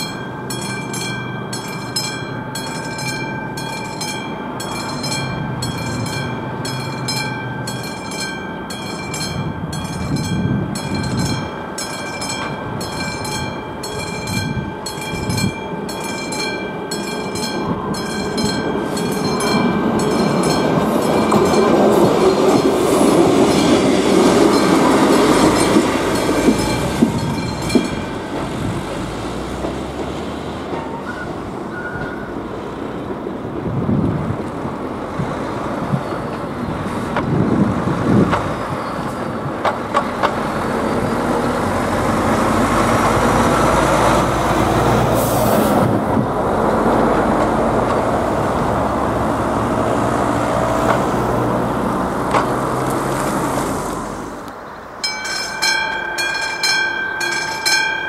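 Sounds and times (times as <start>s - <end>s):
crossing warning bell ringing: 0.0s - 33.1s, 54.7s - 58.0s
lorry passing: 0.0s - 58.0s
road traffic: 0.0s - 58.0s.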